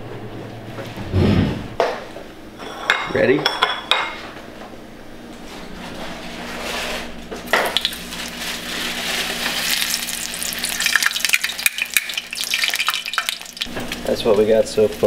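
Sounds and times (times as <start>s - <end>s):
oil sizzling in a frying pan: 7.5s - 15.0s.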